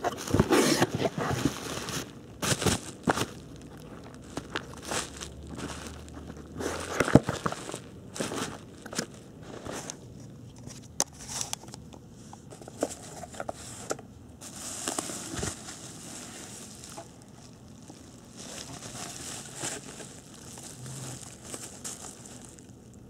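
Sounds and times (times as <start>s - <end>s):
bubble wrap crinkling: 0.0s - 10.0s, 12.6s - 23.0s.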